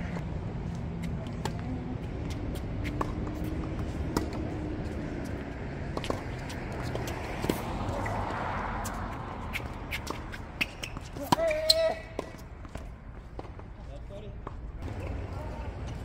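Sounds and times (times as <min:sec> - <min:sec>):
tennis ball bouncing: 0:01.3 - 0:08.2, 0:08.8 - 0:13.7
rackets striking tennis ball: 0:08.8 - 0:13.7.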